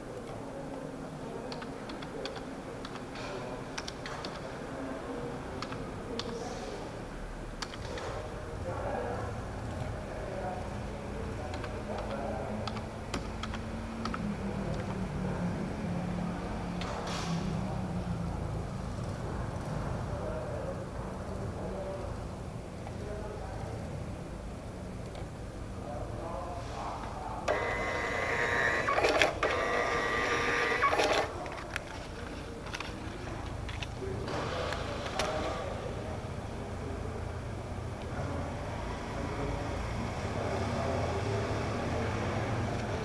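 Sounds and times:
printer mechanical whir: 27.5 - 35.6.

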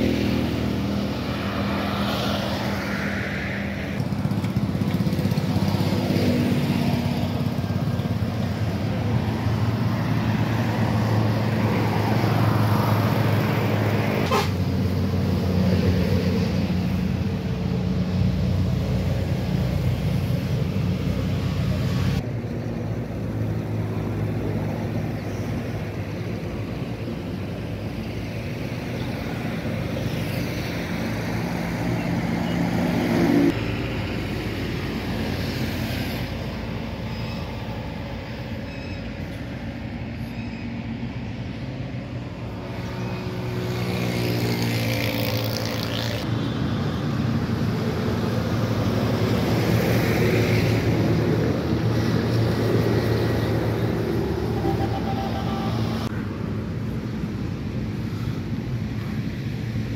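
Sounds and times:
motor vehicle engines running: 0.0 - 59.9
vehicle engine rising in pitch: 52.8 - 56.1.

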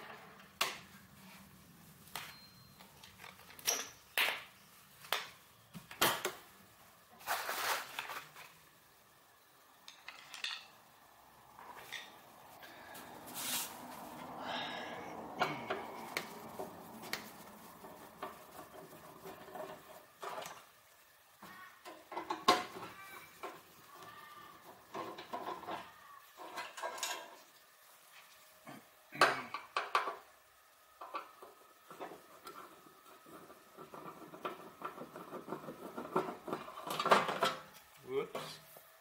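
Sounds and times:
screws clinking on concrete floor: 2.2 - 4.1, 9.8 - 10.8.

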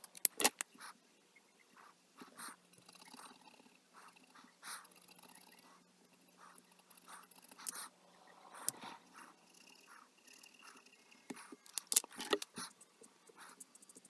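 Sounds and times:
marker scratching on paper: 1.8 - 2.6, 6.4 - 14.0.

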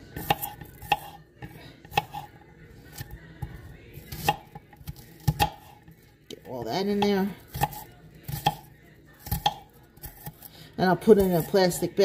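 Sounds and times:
knife chopping on cutting board: 0.2 - 2.3, 4.1 - 5.8, 6.9 - 10.4.

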